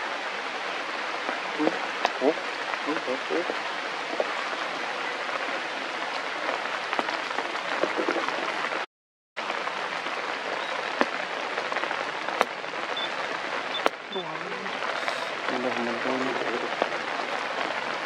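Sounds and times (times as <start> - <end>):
water drops hissing on leaves: 13.9 - 17.8.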